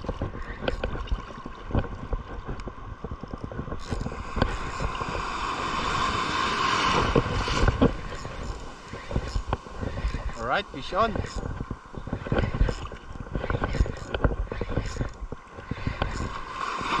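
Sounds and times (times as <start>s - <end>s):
wind buffeting the microphone: 0.0s - 17.0s
wave breaking and washing in: 3.8s - 13.4s, 15.3s - 17.0s.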